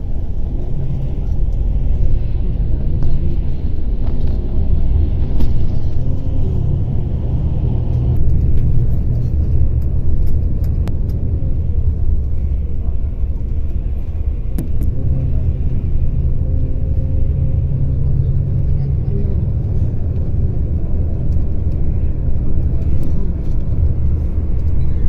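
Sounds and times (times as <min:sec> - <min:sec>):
vehicle road and engine rumble: 0:00.0 - 0:25.0.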